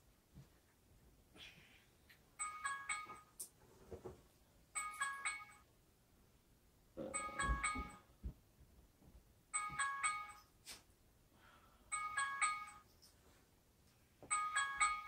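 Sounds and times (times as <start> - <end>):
phone alarm jingle: 2.4 - 3.3, 4.8 - 5.7, 7.1 - 8.0, 9.5 - 10.4, 11.9 - 12.9, 14.3 - 15.0.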